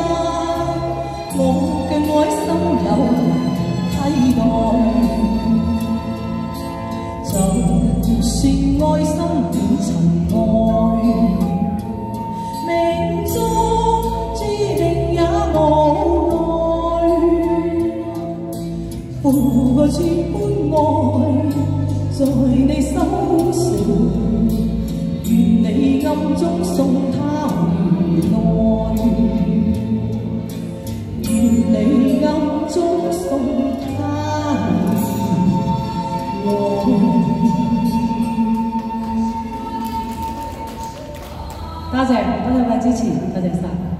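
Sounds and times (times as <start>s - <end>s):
woman singing into microphone: 0.0s - 6.0s, 7.2s - 18.3s, 19.1s - 30.2s, 31.2s - 43.8s
pop backing track with bass: 0.0s - 43.9s.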